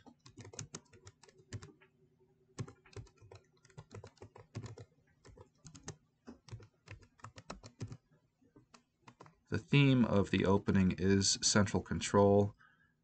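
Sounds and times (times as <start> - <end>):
computer keyboard typing: 0.0 - 1.9, 2.6 - 8.1, 8.7 - 9.4.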